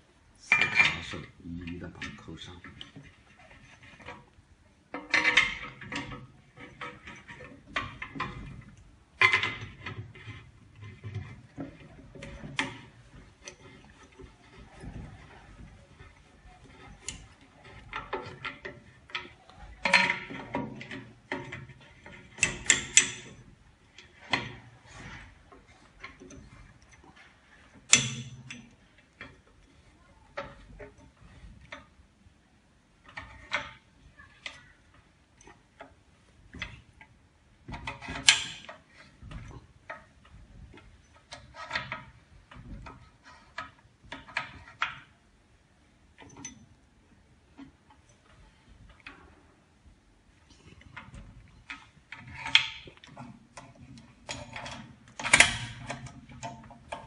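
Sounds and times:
clamping handles clicking and knocking: 0.4 - 32.2, 32.9 - 49.4, 50.4 - 57.0.

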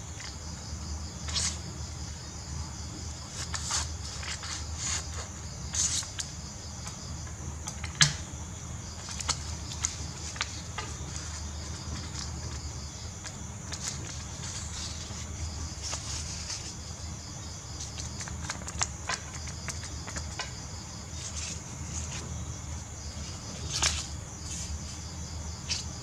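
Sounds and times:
crickets chirring: 0.0 - 26.0
paper rustling: 3.3 - 6.3, 9.0 - 17.0, 17.8 - 22.5, 23.1 - 25.0, 25.6 - 26.0.

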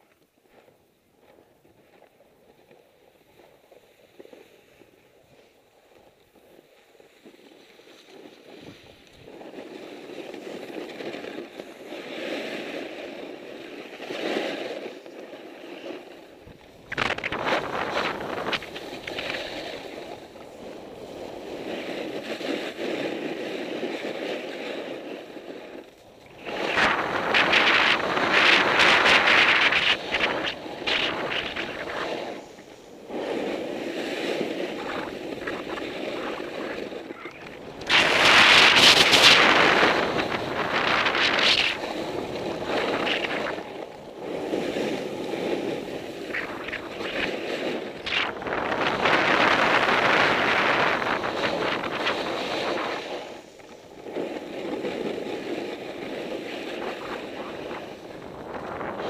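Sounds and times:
skis scraping over snow: 0.0 - 59.0
wind buffeting microphone: 15.7 - 59.0.

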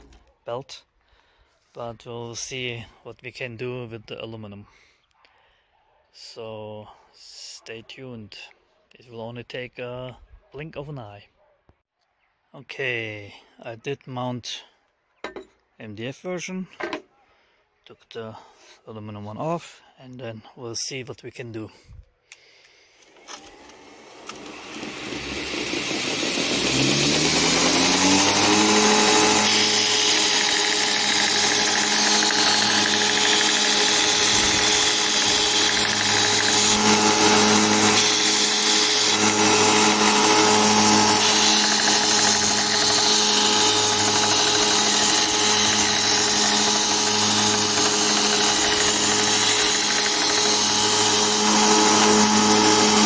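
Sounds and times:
grinder motor spinning up and running: 23.0 - 53.0
metal plate grinding on belt: 24.3 - 53.0.

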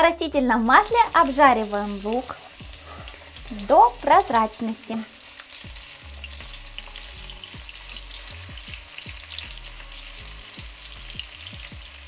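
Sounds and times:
onion sizzling in oil: 0.4 - 12.0.

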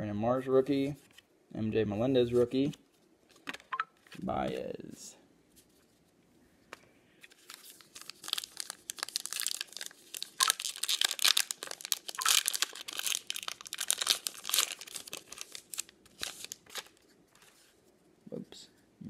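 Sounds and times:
plastic wrapper tearing and crinkling: 7.3 - 17.0.

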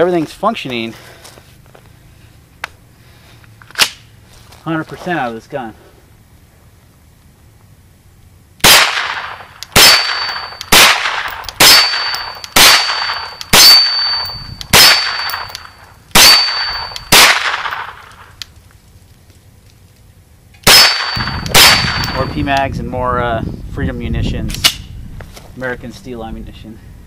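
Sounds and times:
gunshots: 8.6 - 18.3, 20.6 - 22.3
high metallic ring: 9.8 - 17.1, 20.7 - 22.5.

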